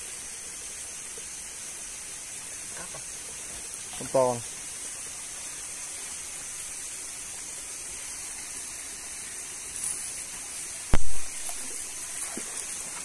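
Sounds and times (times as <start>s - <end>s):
stream hissing: 0.0s - 13.0s.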